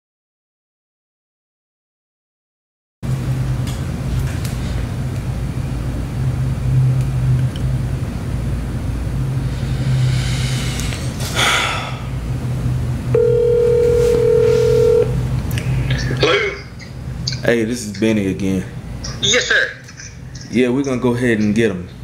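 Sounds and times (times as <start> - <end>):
constant low hum: 3.0 - 22.0
telephone ringback tone: 13.1 - 15.2
rustling noise: 13.8 - 14.9.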